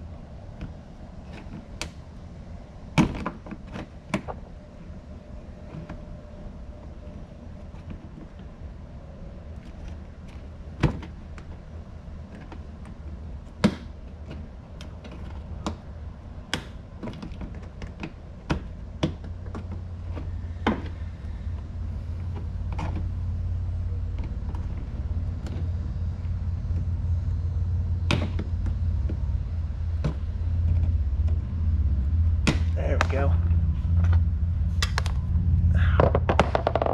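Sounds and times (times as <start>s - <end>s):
low rumble: 18.8s - 36.9s.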